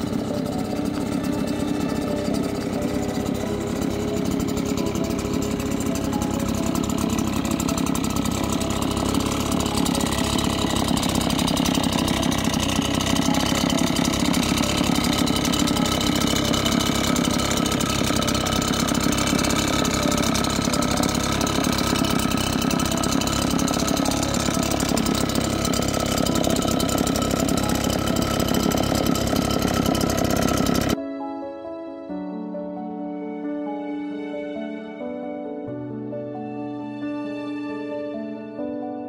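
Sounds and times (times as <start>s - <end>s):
blower engine idling: 0.0s - 31.0s.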